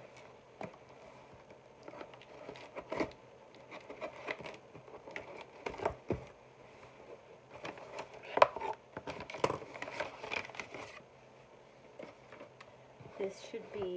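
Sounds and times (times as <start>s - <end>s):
cardboard scraping and rustling: 0.0s - 11.0s.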